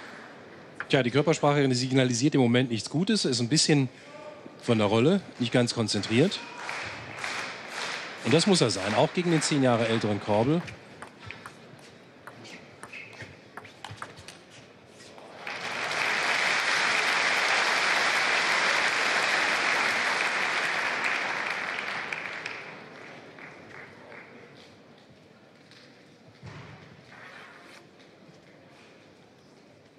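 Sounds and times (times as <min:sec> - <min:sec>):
crowd applause: 0:06.6 - 0:10.5, 0:15.3 - 0:24.1.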